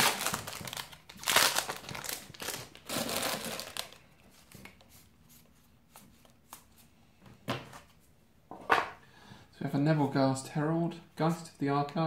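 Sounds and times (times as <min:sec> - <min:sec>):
foil wrapper crinkling: 0:00.0 - 0:04.1.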